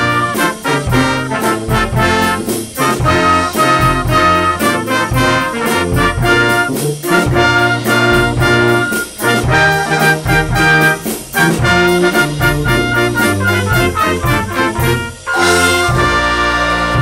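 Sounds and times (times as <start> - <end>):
drum kit steady beat: 0.0 - 17.0
trumpets and flugelhorn melody: 0.0 - 17.0
tubas: 0.0 - 17.0
saxophone and flute: 3.1 - 17.0.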